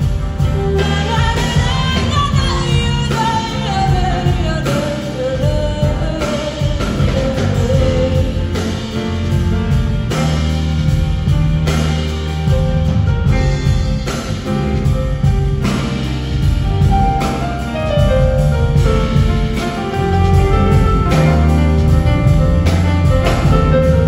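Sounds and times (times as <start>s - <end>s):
jazz band playing: 0.0s - 24.0s
piano: 0.0s - 24.0s.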